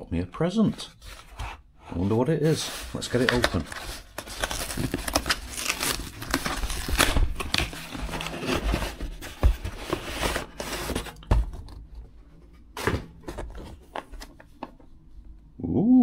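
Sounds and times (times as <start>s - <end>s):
packaging rustling and ripping: 2.5s - 11.8s.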